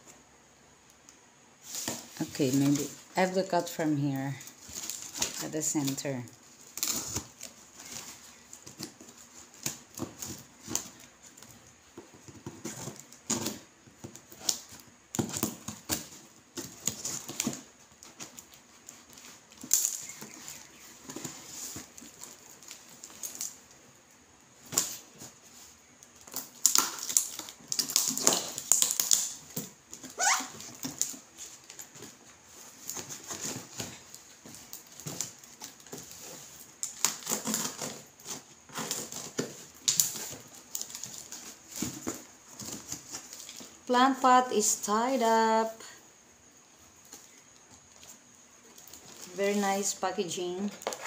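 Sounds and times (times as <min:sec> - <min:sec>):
cardboard and plastic rustling: 0:01.6 - 0:51.0
knife slitting packing tape: 0:35.0 - 0:41.6.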